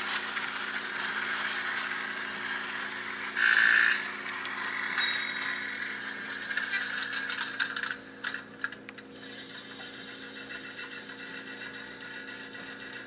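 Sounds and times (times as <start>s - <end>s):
model trains humming and whirring: 0.0s - 13.0s.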